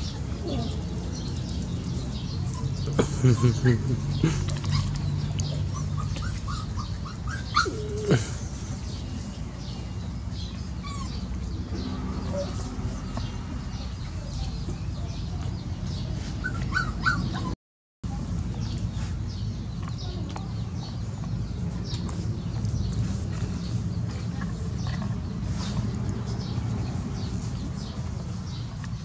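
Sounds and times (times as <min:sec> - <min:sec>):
puppies yipping and whimpering: 0:04.4 - 0:08.4, 0:10.3 - 0:11.6, 0:12.2 - 0:12.8, 0:16.4 - 0:17.6.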